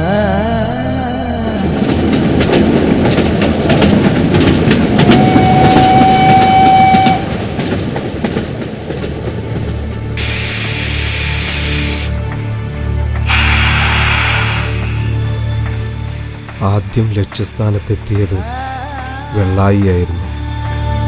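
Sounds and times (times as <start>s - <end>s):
steam train wheels clicking: 1.9s - 12.5s, 13.1s - 18.4s
steam train whistle blast: 5.1s - 7.3s, 13.3s - 15.2s.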